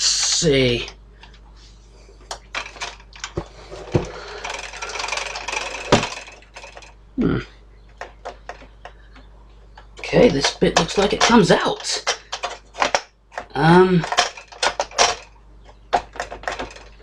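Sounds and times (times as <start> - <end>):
metal panels clicking and knocking: 9.8 - 17.0.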